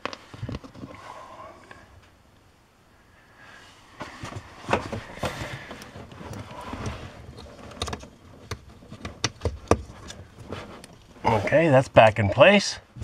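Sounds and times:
rustling: 3.5s - 12.1s
sharp plastic clicks and knocks: 4.7s - 10.2s.

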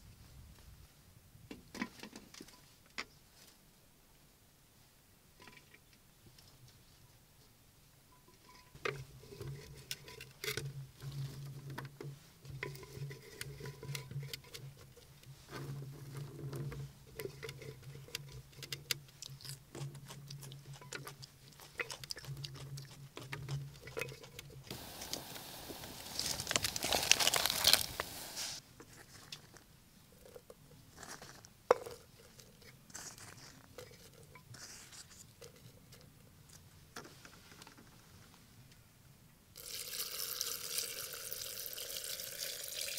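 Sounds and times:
hands packing vegetables into jar: 23.2s - 29.7s
rustling rush: 24.7s - 28.6s.

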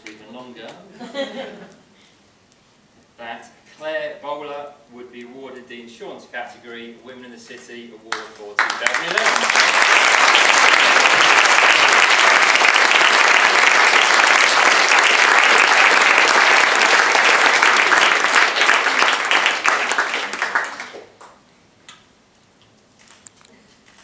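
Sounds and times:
audience applauding: 8.6s - 21.4s.

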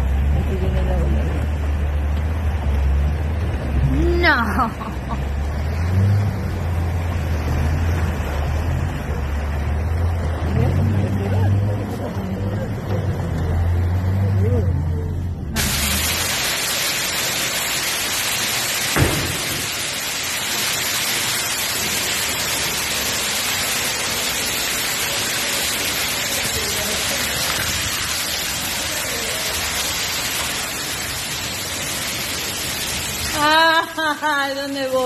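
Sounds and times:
heavy rain pouring: 0.0s - 35.0s
knock: 19.0s - 19.6s.

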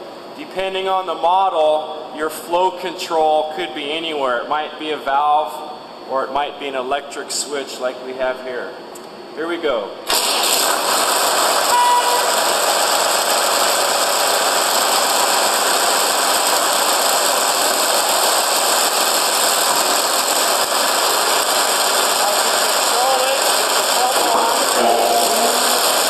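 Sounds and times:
concrete pump running: 10.1s - 26.0s.

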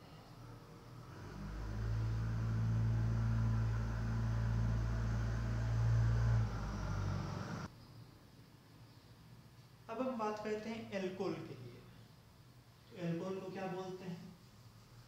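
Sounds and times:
low motor hum: 0.3s - 7.7s.

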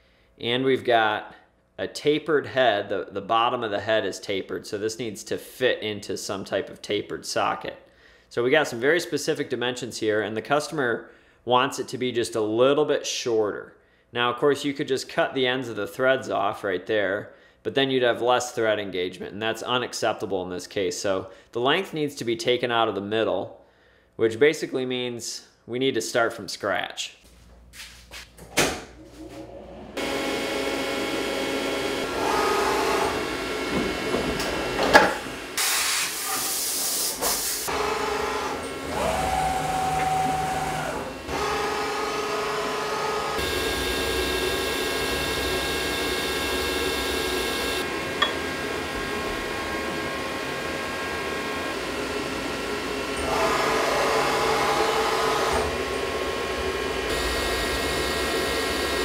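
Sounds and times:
milling machine whine: 29.2s - 35.6s, 37.7s - 59.0s
loud hiss: 35.6s - 37.7s.

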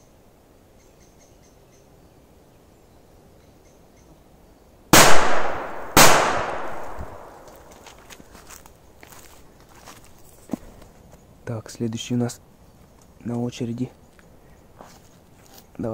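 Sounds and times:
firecracker bangs: 5.0s - 7.5s.

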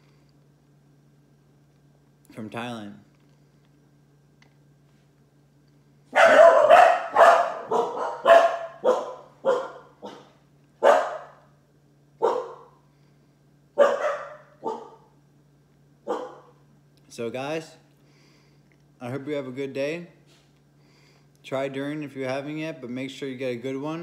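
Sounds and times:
dog barking: 6.1s - 11.4s, 12.2s - 12.8s, 13.8s - 15.1s, 16.0s - 16.6s.

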